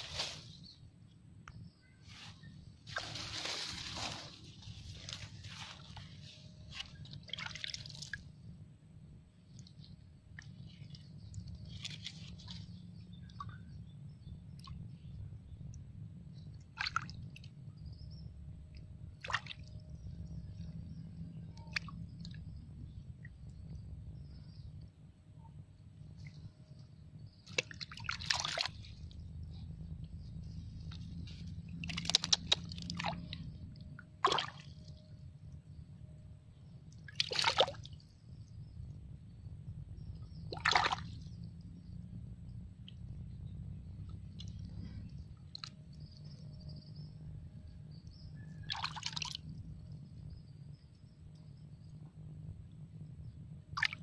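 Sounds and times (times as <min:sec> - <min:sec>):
hand sloshing in muddy water: 0:02.1 - 0:08.3, 0:09.6 - 0:13.6, 0:16.8 - 0:17.5, 0:19.2 - 0:19.8, 0:27.4 - 0:35.0, 0:36.9 - 0:38.0, 0:40.2 - 0:41.4, 0:48.7 - 0:49.5, 0:53.8 - 0:54.0
sharp splashes: 0:06.8 - 0:08.3, 0:16.7 - 0:17.5, 0:19.2 - 0:19.8, 0:27.4 - 0:29.2, 0:30.9 - 0:33.6, 0:34.2 - 0:35.0, 0:37.0 - 0:38.0, 0:40.2 - 0:41.4, 0:48.7 - 0:49.4, 0:53.8 - 0:54.0
low rumble: 0:28.2 - 0:37.1
wet squishing: 0:30.8 - 0:33.5.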